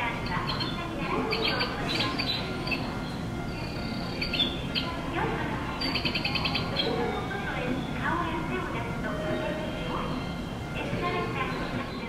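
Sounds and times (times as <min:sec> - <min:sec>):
recorded birdsong chirps: 0:00.0 - 0:08.1, 0:08.8 - 0:12.0
station background noise: 0:00.0 - 0:12.0.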